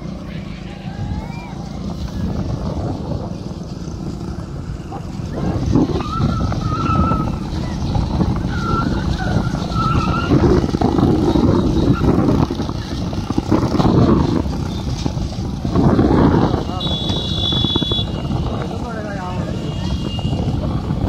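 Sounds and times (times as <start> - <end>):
motorcycles revving: 0.0 - 21.0
people making high wavering calls: 0.3 - 2.1, 4.7 - 12.2.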